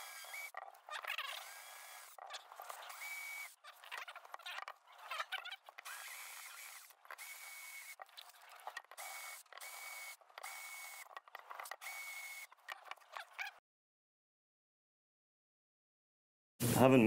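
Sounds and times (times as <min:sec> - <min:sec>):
power drill whining: 0:00.0 - 0:13.6.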